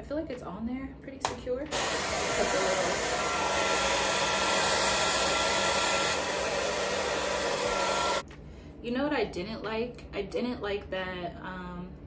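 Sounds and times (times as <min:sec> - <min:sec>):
hair dryer blowing: 0:01.7 - 0:08.2.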